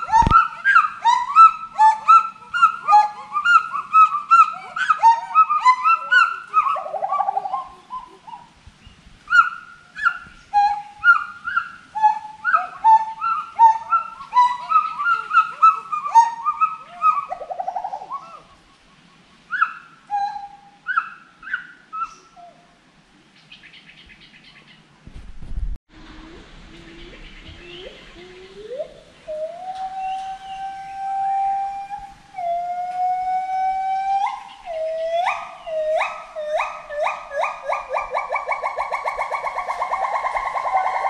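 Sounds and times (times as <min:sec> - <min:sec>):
gibbons hooting: 0:00.0 - 0:08.5, 0:09.3 - 0:18.6, 0:26.3 - 0:41.0.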